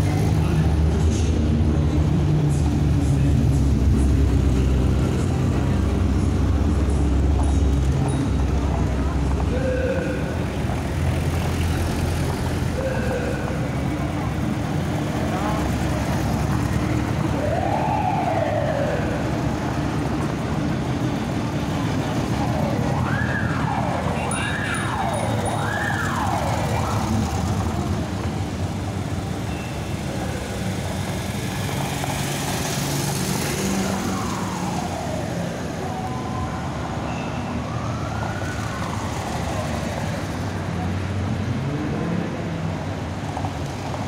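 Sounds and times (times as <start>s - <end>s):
slow car engines: 0.0s - 44.0s
vehicle siren wailing: 9.4s - 14.5s, 16.5s - 20.5s, 21.8s - 40.6s.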